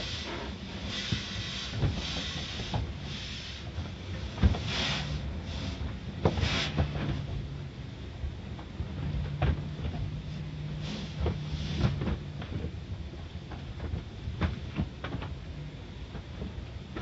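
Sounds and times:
water spray hissing on windshield: 0.0 - 3.7, 4.6 - 6.8.

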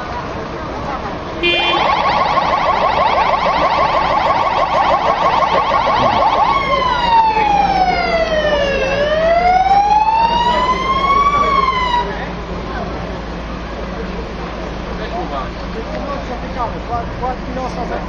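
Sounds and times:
emergency vehicle siren: 1.4 - 12.5.

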